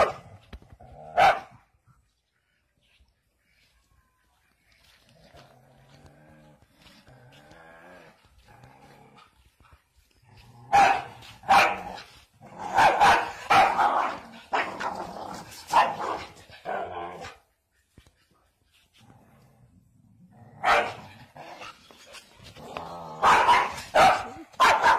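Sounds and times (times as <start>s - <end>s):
dog growling and barking: 5.2s - 9.5s, 10.1s - 17.4s, 19.0s - 24.9s.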